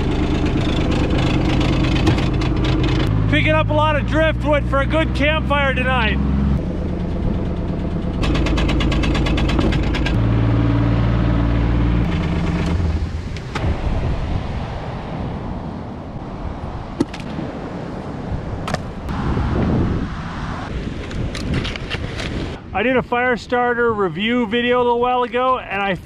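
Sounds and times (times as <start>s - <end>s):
engine running with fast rattle: 0.0s - 3.4s, 5.5s - 13.7s
wooden logs knocking: 7.3s - 10.2s.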